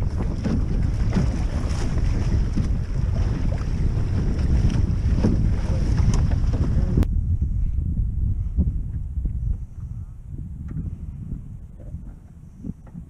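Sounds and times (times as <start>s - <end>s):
water rushing along hull: 0.0s - 7.1s
wind buffeting microphone: 0.0s - 13.0s.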